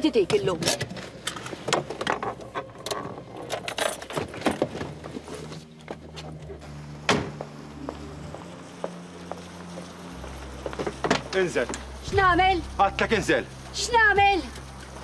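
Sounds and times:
car door shutting: 7.0 - 7.4.

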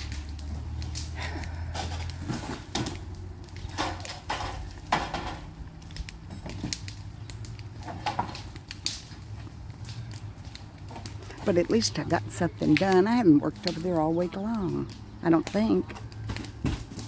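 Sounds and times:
roofing being torn off: 0.0 - 11.6.

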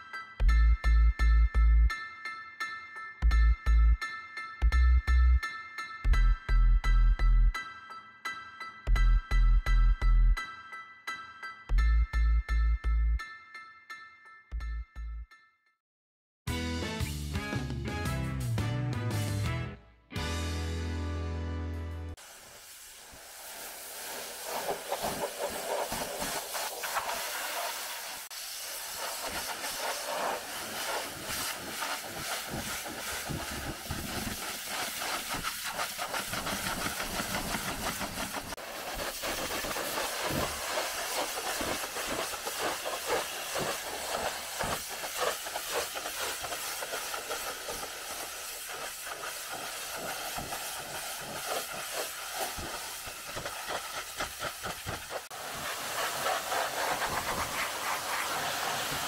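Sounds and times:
pressure washer spraying: 22.2 - 59.0.

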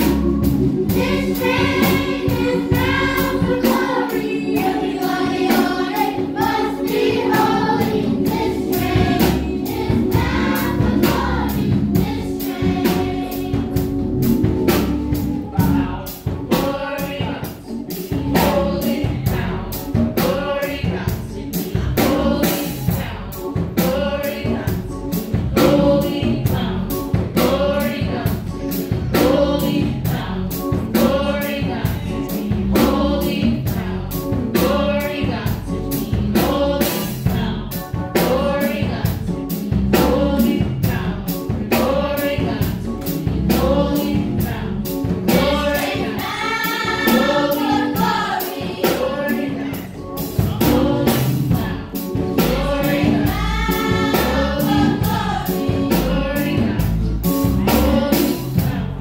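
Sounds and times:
steady beat: 0.0 - 20.3, 39.9 - 58.4
children's choir singing: 0.0 - 28.4, 29.1 - 39.0, 40.0 - 42.8, 43.4 - 56.8.

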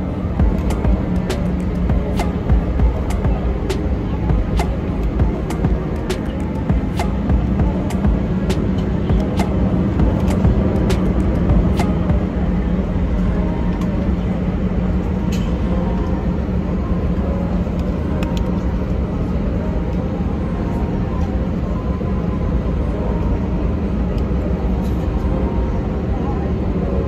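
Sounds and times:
jet engines rumbling: 0.0 - 18.2.

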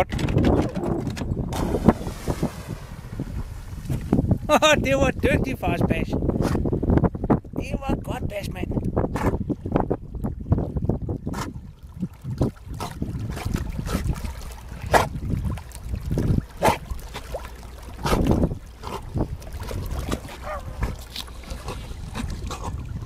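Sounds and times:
wind rumbling on microphone: 0.0 - 23.0
dog splashing in water: 1.5 - 3.1.

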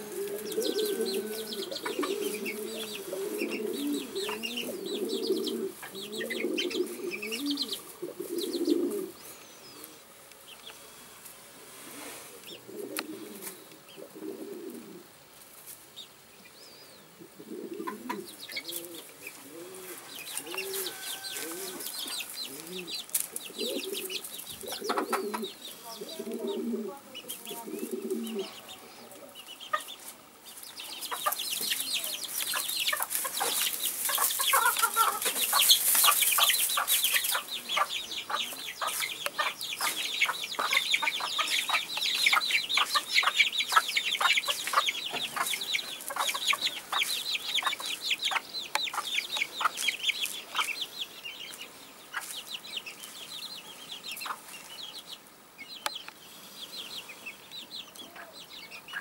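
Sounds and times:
hen clucking: 0.0 - 9.2, 17.2 - 51.1, 54.1 - 54.6
chicks chirping: 0.0 - 11.2, 16.0 - 59.0.

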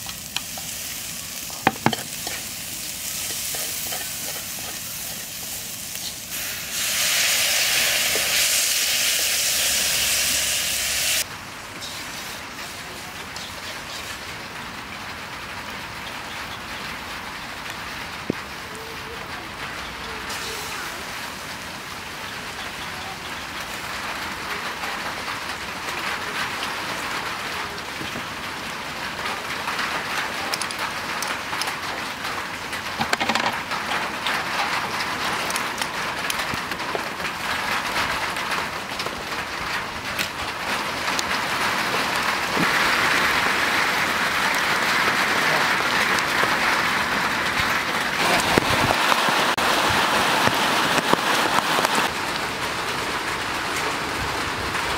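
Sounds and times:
hissing patter: 0.0 - 14.5, 29.1 - 52.5.

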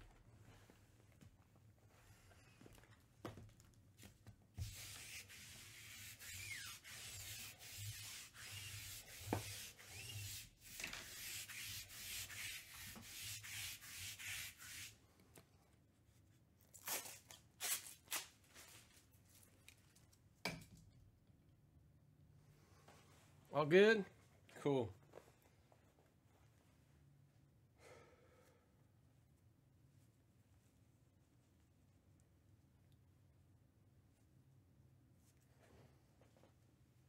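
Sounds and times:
lint roller rubbing: 4.6 - 15.0.

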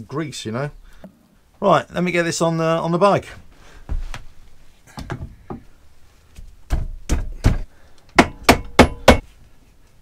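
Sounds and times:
hammer knocking metal shaft: 8.2 - 9.2.

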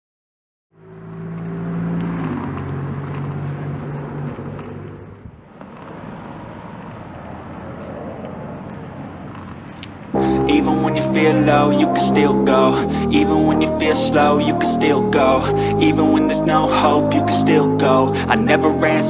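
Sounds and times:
vehicle engine running: 0.8 - 5.5.

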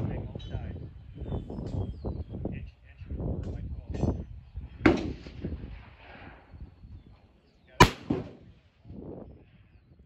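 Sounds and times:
faint gunshot report: 7.8 - 8.5
rifle shot: 7.8 - 8.6.

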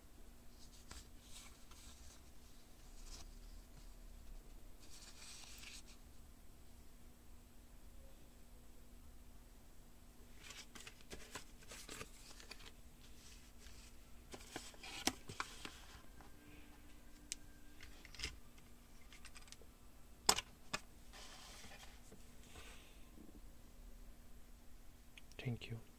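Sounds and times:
paper and card rustling: 0.6 - 3.9, 4.8 - 6.0, 10.3 - 16.0, 20.3 - 22.2.

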